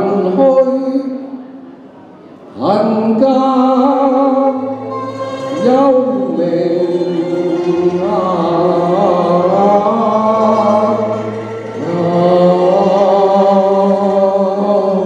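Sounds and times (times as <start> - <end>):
man singing with vibrato: 0.0 - 1.6, 2.5 - 15.0
instrumental accompaniment: 3.1 - 15.0.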